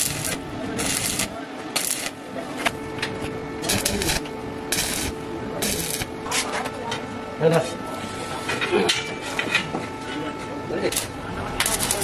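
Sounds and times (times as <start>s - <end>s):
welding arc crackling: 0.0s - 6.5s, 10.7s - 12.0s
steady hum: 0.0s - 12.0s.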